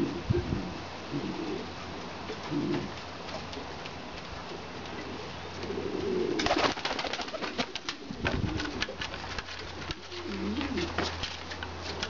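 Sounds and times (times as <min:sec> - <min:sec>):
pigeons cooing: 0:00.0 - 0:03.6, 0:04.5 - 0:09.0, 0:09.7 - 0:11.1
wing claps and flapping: 0:06.4 - 0:10.1.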